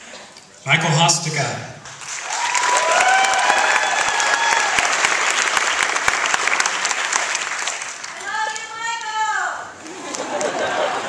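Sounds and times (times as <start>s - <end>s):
audience applauding: 1.8s - 9.2s, 9.8s - 11.0s
drawn-out cheers: 2.2s - 5.1s.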